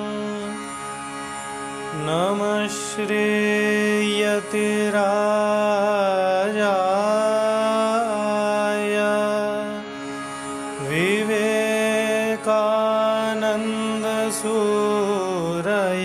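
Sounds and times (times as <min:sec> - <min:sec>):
man chanting: 0:00.0 - 0:00.6, 0:01.9 - 0:09.9, 0:10.8 - 0:16.0.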